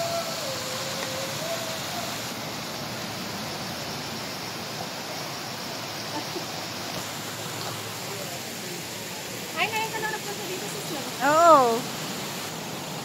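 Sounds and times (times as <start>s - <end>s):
stream water rushing over rocks: 0.0s - 13.0s.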